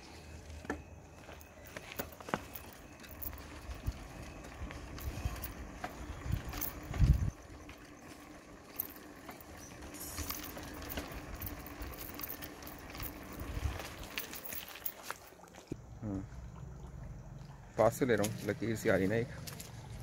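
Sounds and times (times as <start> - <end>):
bicycle rumbling: 0.0 - 15.9
bike clicks and rattles: 0.4 - 15.2.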